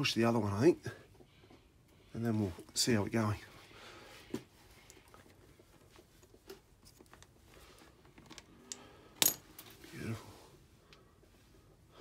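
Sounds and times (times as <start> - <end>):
metal chain clicks and rattles: 8.2 - 9.8.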